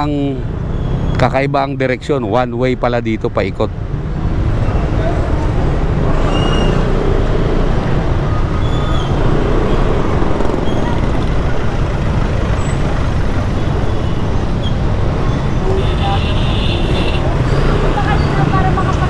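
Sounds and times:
traffic low rumble: 0.0s - 19.0s
faint short high squeaks: 6.2s - 6.9s.

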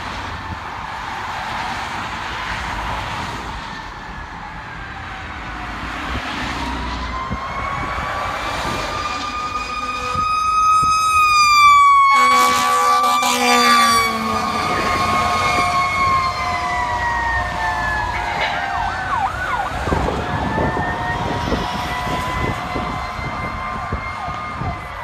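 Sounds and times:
emergency siren wailing: 0.0s - 25.0s
low-pitched horn blast: 9.1s - 10.4s, 12.1s - 24.7s.

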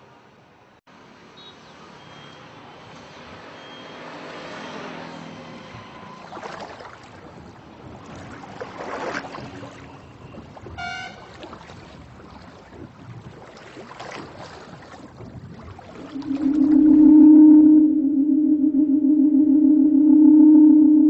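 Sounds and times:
traffic rushing: 0.9s - 8.8s
short high beep: 16.1s - 21.0s.

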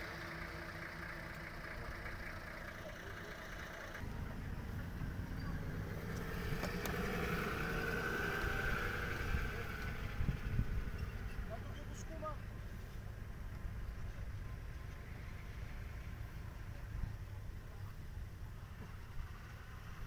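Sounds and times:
vehicle engine running: 0.0s - 20.0s.

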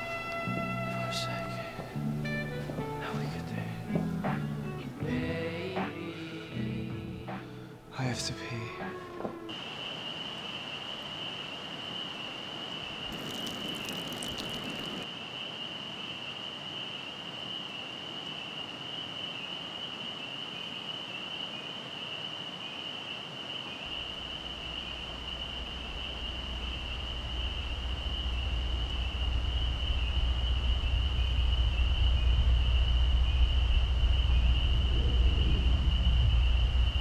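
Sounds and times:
night insects trilling: 0.0s - 7.0s, 7.8s - 37.0s
low rumbling drone: 0.0s - 8.0s, 23.9s - 37.0s.

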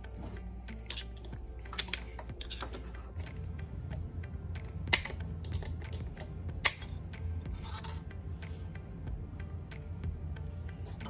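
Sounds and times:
pliers clicking on metal ring: 0.8s - 7.0s.

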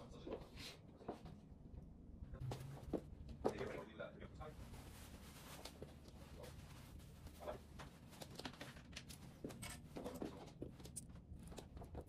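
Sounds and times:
low steady hum: 1.2s - 12.0s
clothing rustling: 4.4s - 12.0s.

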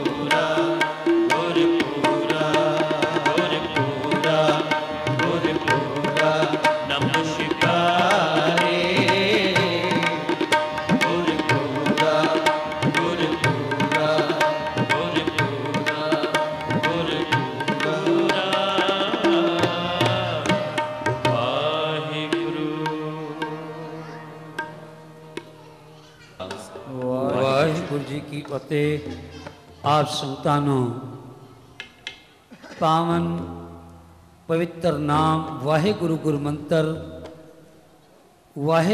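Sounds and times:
harmonium chords: 0.0s - 25.5s
man singing: 0.0s - 25.6s, 26.4s - 31.2s, 34.5s - 37.2s, 38.6s - 38.9s
tabla playing: 0.0s - 30.2s.

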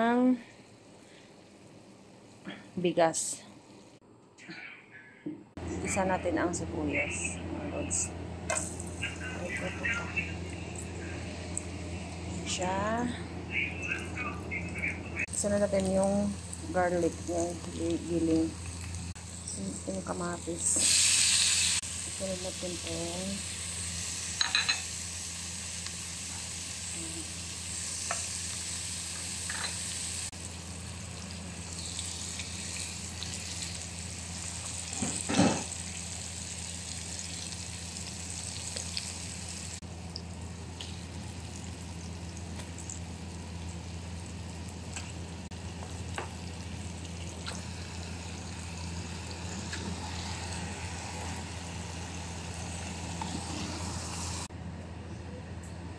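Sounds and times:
steady low hum: 0.0s - 20.8s
food sizzling in oil: 15.3s - 54.5s.

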